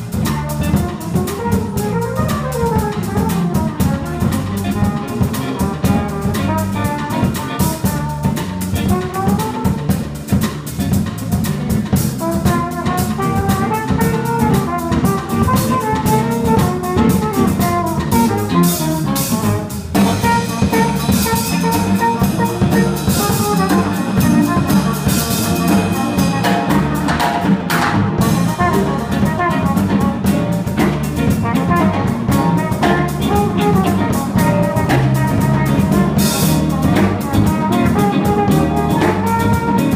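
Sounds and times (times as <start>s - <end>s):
flugelhorn melody: 0.0s - 10.4s, 11.4s - 27.5s, 28.2s - 39.9s
bass: 0.0s - 39.9s
drum kit: 0.0s - 39.9s
electric keyboard: 0.0s - 39.9s
electric guitar: 12.9s - 39.9s.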